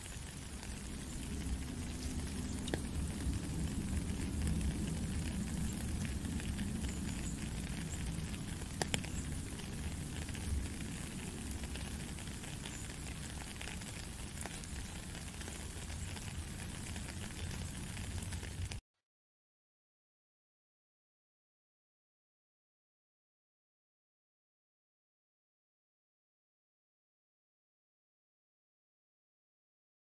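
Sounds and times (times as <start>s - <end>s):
rain pattering on wet gravel: 0.0s - 18.8s.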